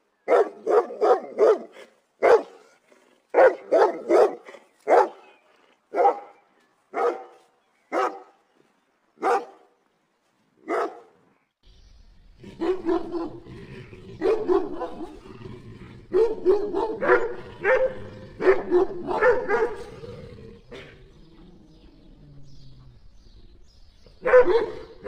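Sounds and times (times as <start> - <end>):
dog barking: 0.3 - 2.7, 3.3 - 5.3, 5.9 - 6.4, 7.0 - 8.4, 9.2 - 9.7, 10.6 - 11.2, 12.6 - 13.4, 14.2 - 15.2, 16.1 - 19.9, 24.2 - 25.0.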